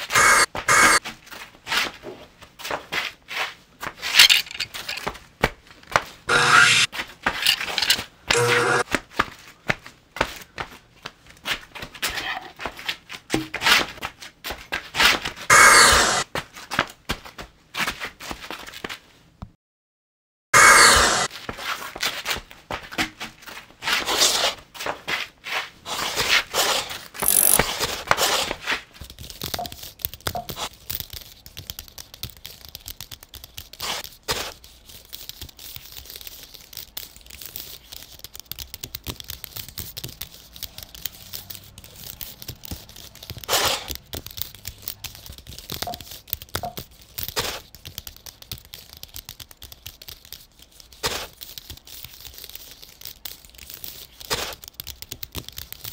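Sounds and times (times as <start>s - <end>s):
small clicks and taps: 36.9s - 50.5s, 51.6s - 55.9s.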